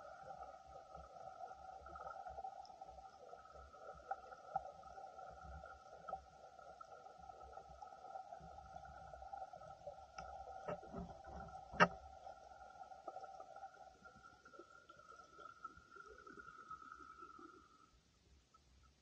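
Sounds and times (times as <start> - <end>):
underwater two-tone hum: 0.0 - 19.0.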